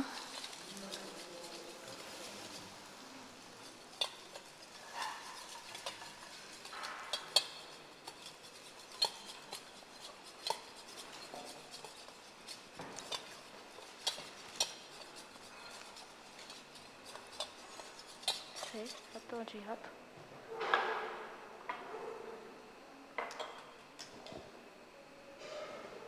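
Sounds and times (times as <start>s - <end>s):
utensils clinking on metal bowl: 0.0s - 19.3s.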